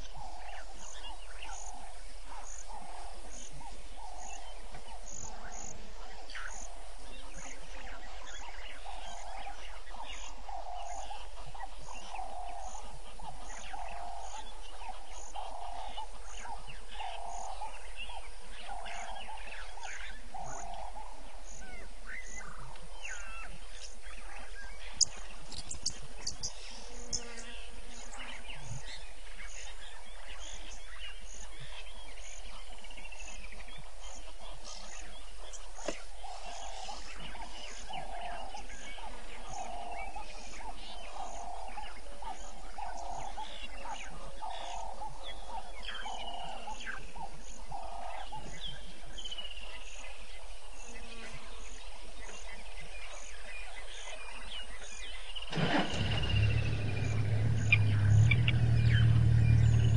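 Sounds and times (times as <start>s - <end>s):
birds calling in falling whistles: 0.0s - 59.9s
low engine rumble: 55.3s - 59.9s
animal calls: 55.4s - 59.9s.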